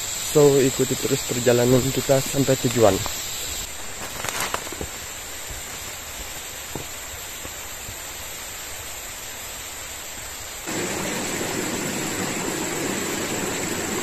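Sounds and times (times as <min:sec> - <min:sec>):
forest hiss: 0:00.0 - 0:14.0
footsteps on dry leaves: 0:03.7 - 0:05.0.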